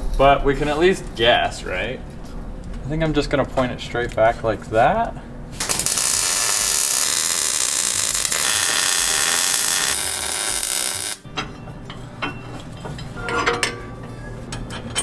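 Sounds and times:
welder arc crackling and hissing: 5.6 - 11.2
ringing metal clank: 11.3 - 15.0.

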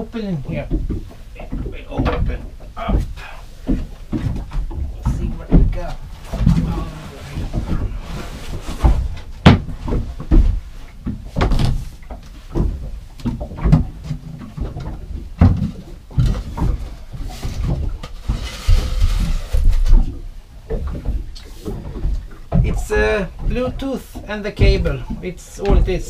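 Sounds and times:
scraping rustle: 5.9 - 12.6, 16.2 - 20.2
wooden hatch panels knocking: 8.8 - 11.8.

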